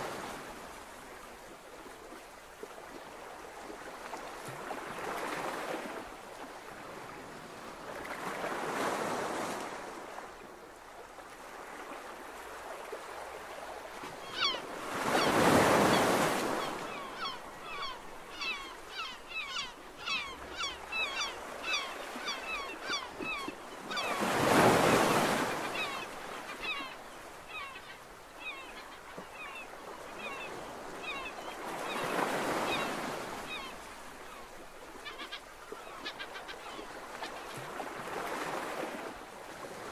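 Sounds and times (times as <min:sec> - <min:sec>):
ocean surf breaking on beach: 0:00.0 - 0:01.5, 0:23.8 - 0:26.6.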